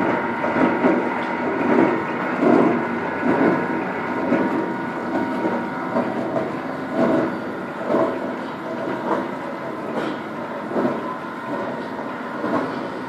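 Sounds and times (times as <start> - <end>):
milling machine running: 0.0 - 13.0.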